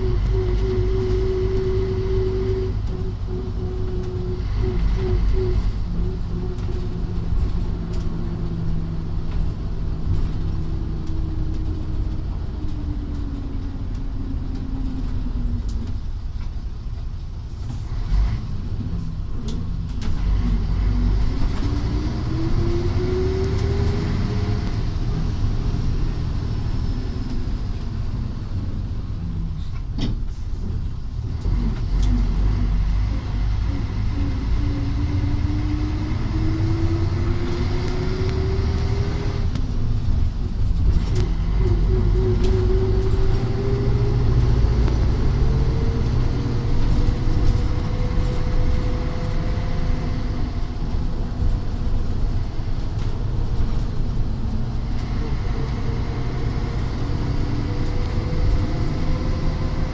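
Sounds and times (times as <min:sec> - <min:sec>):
bus diesel engine: 0:00.0 - 0:59.9
low road rumble: 0:00.0 - 0:59.9
small rattles and clicks: 0:46.0 - 0:55.8.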